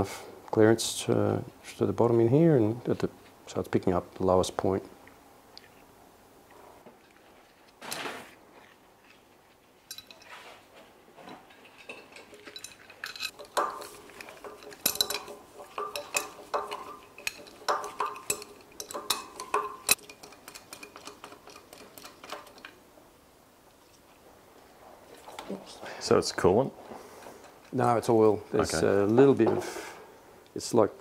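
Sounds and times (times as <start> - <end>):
spanner clinking on metal: 9.9 - 10.4, 11.3 - 22.8.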